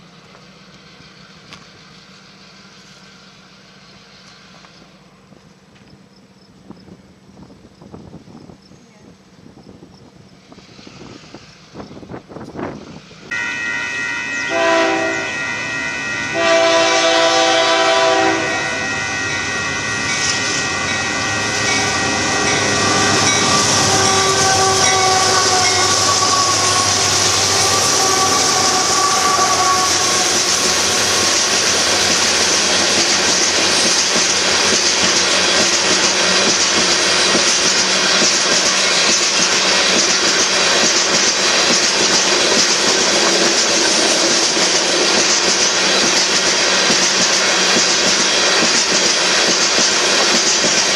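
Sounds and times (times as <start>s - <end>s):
train rumble and wheel noise: 0.0s - 50.9s
locomotive air horn blasts: 13.3s - 31.8s.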